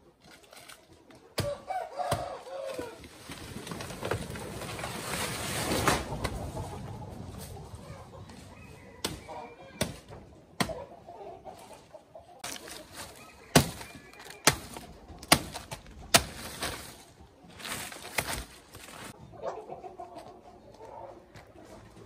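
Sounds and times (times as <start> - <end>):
chickens clucking: 0.0 - 22.0
machete chopping banana trunk: 1.4 - 2.4, 9.0 - 10.8, 13.5 - 16.8.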